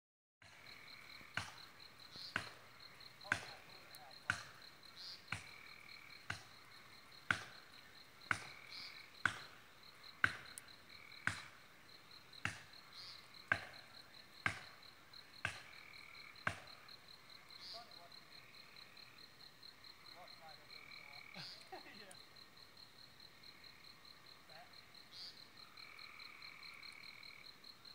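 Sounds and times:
insect trilling: 0.4s - 27.8s
hatchet chopping wood: 1.4s - 1.6s, 2.3s - 2.6s, 3.3s - 3.6s, 4.3s - 4.6s, 5.3s - 5.5s, 6.3s - 6.5s, 7.3s - 7.6s, 8.3s - 8.6s, 9.2s - 9.6s, 10.2s - 10.6s, 11.2s - 11.5s, 12.4s - 12.8s, 13.5s - 13.8s, 14.4s - 14.8s, 15.4s - 15.7s, 16.4s - 16.7s.

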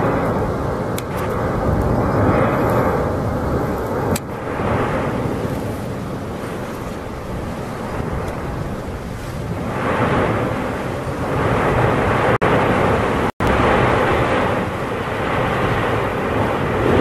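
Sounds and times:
volcano rumbling roar: 0.0s - 17.0s.

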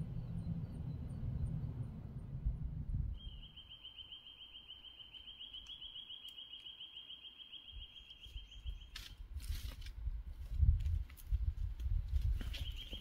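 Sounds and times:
bird trilling: 3.2s - 8.9s.

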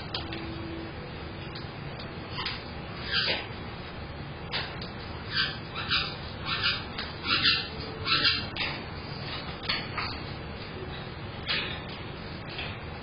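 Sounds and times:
parrots shrieking: 2.3s - 3.5s, 5.3s - 9.4s.

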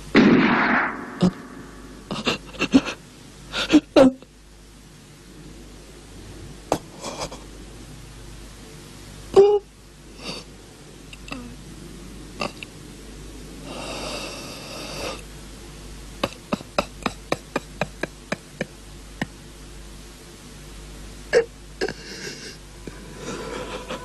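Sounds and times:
man sobbing: 2.1s - 4.2s, 16.2s - 18.7s, 21.4s - 24.0s.

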